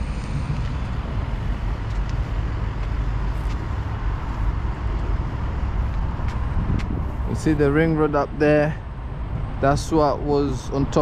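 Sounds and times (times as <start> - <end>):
road traffic roar: 0.0 - 11.0.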